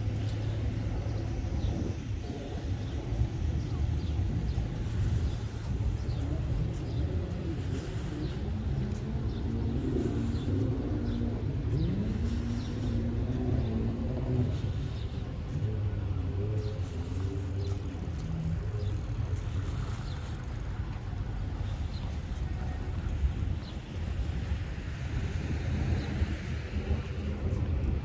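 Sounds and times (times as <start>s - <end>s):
low rumble: 0.0s - 28.0s
motor engine running: 7.6s - 25.4s.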